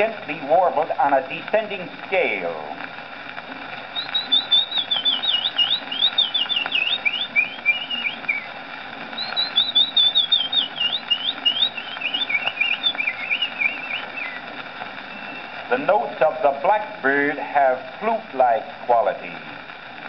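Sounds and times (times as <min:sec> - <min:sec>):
record surface noise: 0:00.0 - 0:20.0
man whistling bird song: 0:04.0 - 0:08.5, 0:09.2 - 0:14.4, 0:15.1 - 0:15.6.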